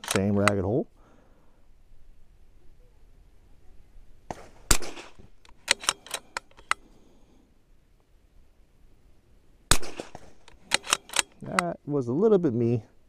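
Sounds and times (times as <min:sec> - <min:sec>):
rifle bolt clicks: 0:00.0 - 0:00.7, 0:04.7 - 0:06.8, 0:09.7 - 0:11.7
rifle shot: 0:04.3 - 0:06.4, 0:09.7 - 0:11.5.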